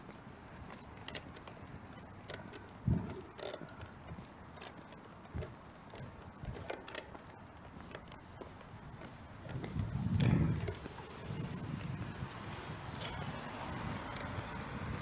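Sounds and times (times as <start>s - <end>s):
faint outdoor background noise: 0.0s - 15.0s
phone handling clicks and rattles: 0.6s - 8.6s, 9.4s - 11.2s, 12.9s - 13.4s.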